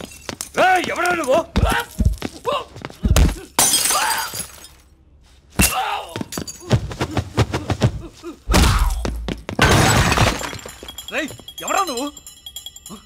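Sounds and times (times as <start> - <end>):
shattering crash: 9.6 - 10.9.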